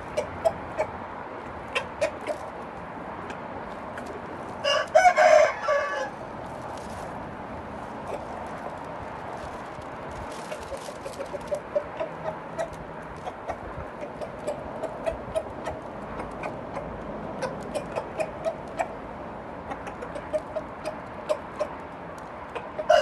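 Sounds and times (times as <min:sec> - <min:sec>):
rooster clucking: 0:00.0 - 0:02.6, 0:08.0 - 0:08.4, 0:10.4 - 0:19.0, 0:19.6 - 0:21.8, 0:22.5 - 0:23.0.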